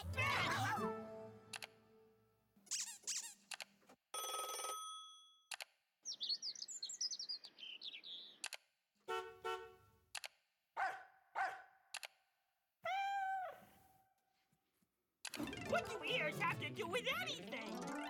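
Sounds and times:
telephone-like ringing: 4.2s - 5.2s
high bird-like chirping: 6.1s - 8.4s.

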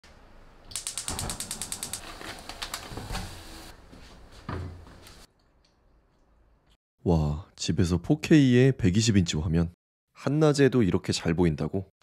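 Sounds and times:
ratchet-like mechanical clicks: 0.7s - 2.0s.

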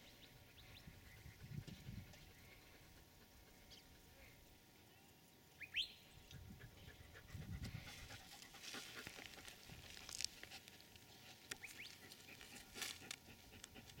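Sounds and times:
wolf panting: 0.4s - 4.2s, 6.4s - 9.9s, 11.9s - 14.0s.

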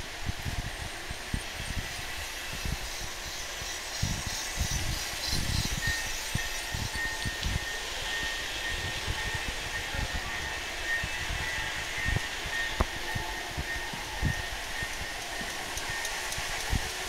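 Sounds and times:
hall noise hiss: 0.0s - 17.0s
model train running on track: 0.0s - 17.0s.

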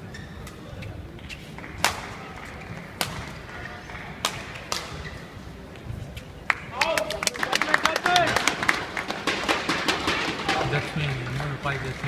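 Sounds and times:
rackets striking shuttlecock: 1.6s - 5.2s.

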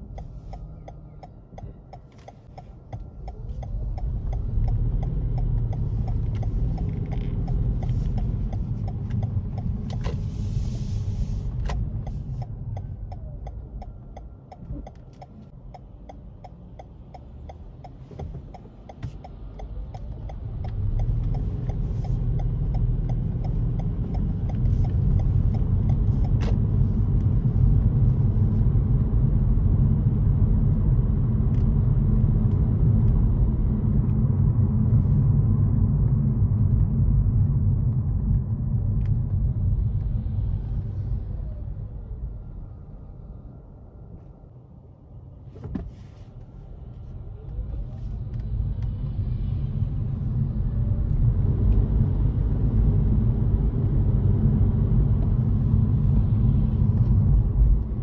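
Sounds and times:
light ticking: 0.0s - 10.2s, 11.5s - 27.4s
car engine and road noise: 0.0s - 58.0s.

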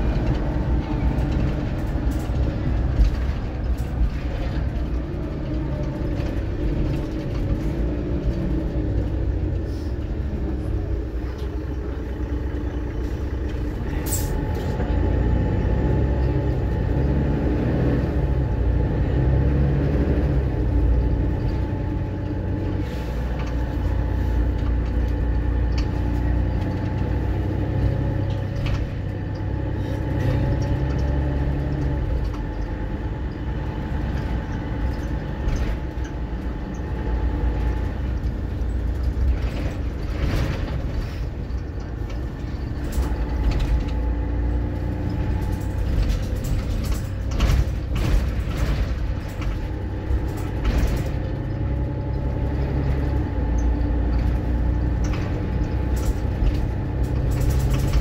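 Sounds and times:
bus diesel engine rumble: 0.0s - 58.0s
light knocks and rattles: 23.3s - 58.0s.

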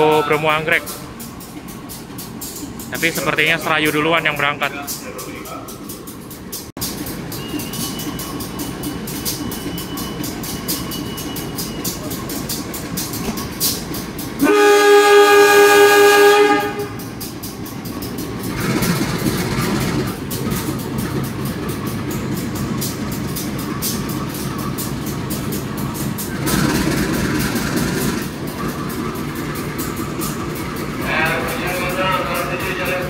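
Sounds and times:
locomotive engine running: 0.0s - 33.0s
multi-tone train horn: 14.4s - 17.1s.

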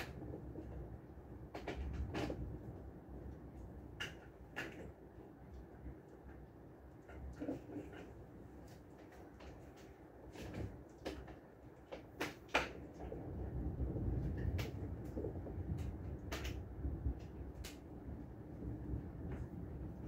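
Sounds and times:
sharp rain taps: 8.6s - 20.0s
heavy rain rumble: 12.8s - 20.0s.

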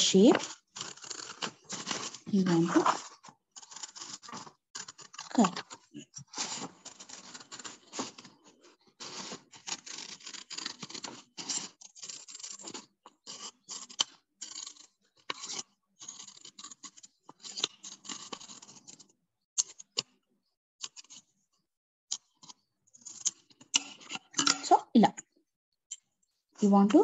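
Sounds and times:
paper rustling: 0.0s - 13.8s
scissors snipping paper: 0.2s - 8.4s, 9.0s - 19.0s.

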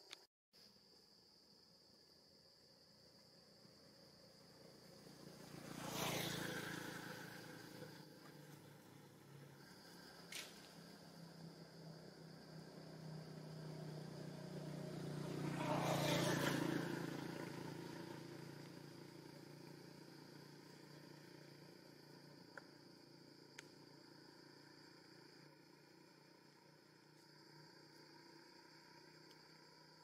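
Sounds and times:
vehicle passing by: 4.5s - 22.2s.

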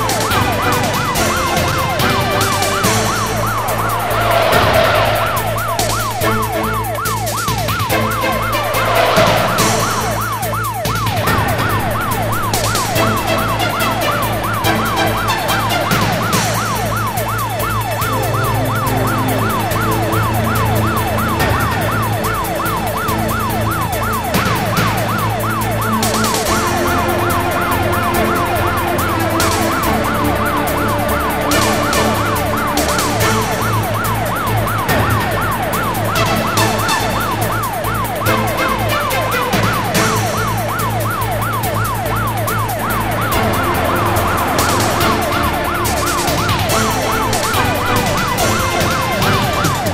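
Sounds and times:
police siren yelping: 0.0s - 49.9s.

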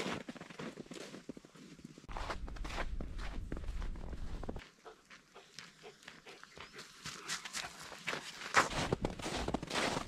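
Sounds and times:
footsteps crunching in snow: 0.0s - 4.6s, 6.8s - 10.0s.

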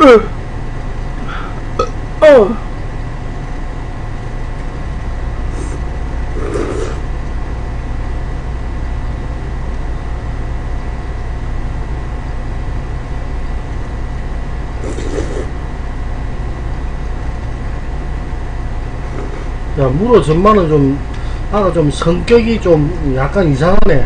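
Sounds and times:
low room hum: 0.0s - 24.0s
noodles being slurped: 6.4s - 7.0s, 14.8s - 15.5s.

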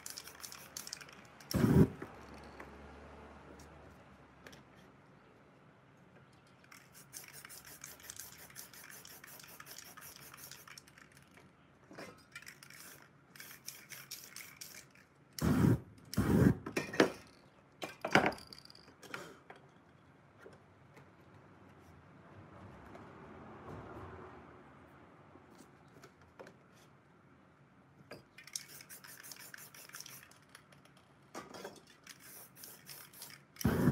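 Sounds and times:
spray can ticking: 0.0s - 2.0s, 6.7s - 11.2s, 12.5s - 15.5s, 28.4s - 31.0s, 32.0s - 33.9s
spray paint bursts: 0.0s - 2.3s, 6.7s - 11.1s, 12.5s - 16.6s, 28.4s - 30.6s, 32.0s - 33.9s.

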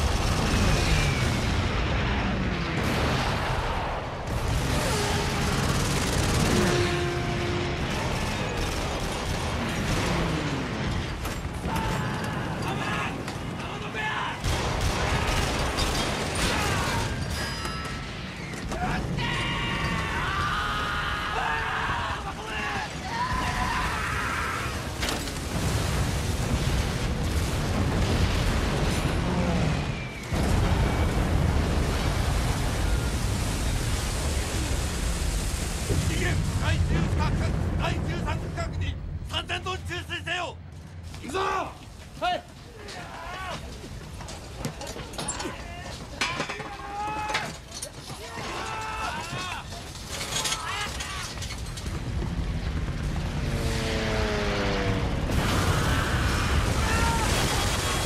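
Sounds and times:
gunfire: 0.0s - 13.6s, 14.4s - 17.4s
booming explosions: 0.0s - 39.6s, 51.3s - 58.0s.

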